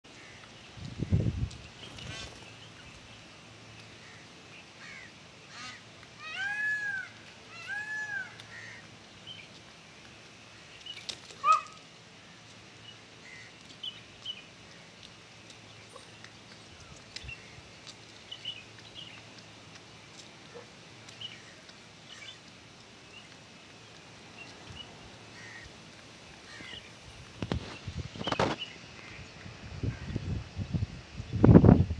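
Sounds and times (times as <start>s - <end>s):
peafowl calling: 4.0s - 8.9s, 11.4s - 11.8s, 24.4s - 25.8s.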